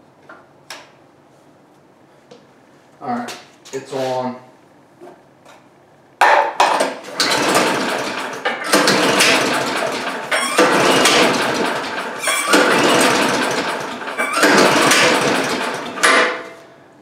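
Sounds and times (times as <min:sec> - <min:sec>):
recoil starter pulls: 0:06.9 - 0:16.5.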